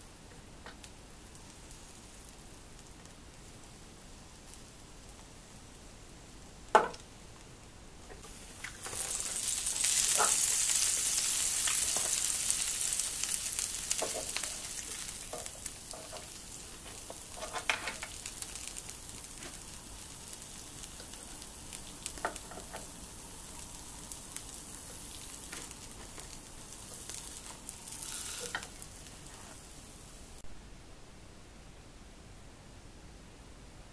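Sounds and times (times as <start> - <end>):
sandwiches sizzling in toaster: 8.2 - 30.4.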